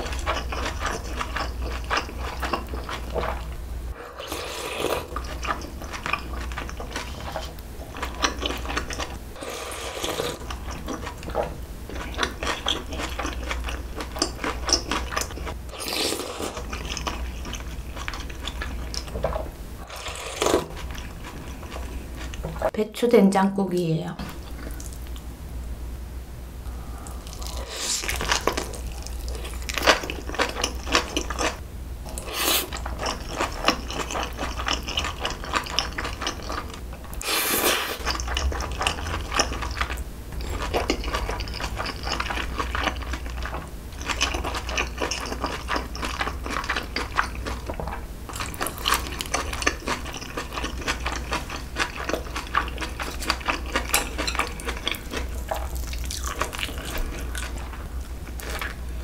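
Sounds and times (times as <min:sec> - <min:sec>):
steady low hum: 0:00.0 - 0:59.0
wet chewing mouth sounds: 0:27.0 - 0:58.8.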